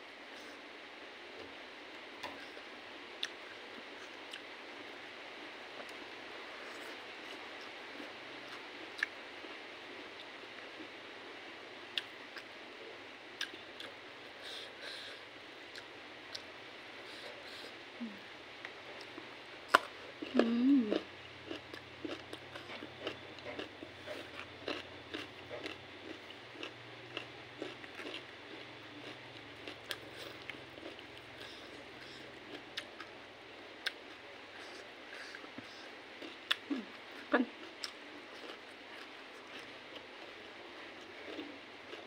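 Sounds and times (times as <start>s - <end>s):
woman humming mm: 18.0s - 18.3s, 20.2s - 21.1s
person chewing with smacks: 18.6s - 33.2s, 33.8s - 42.0s.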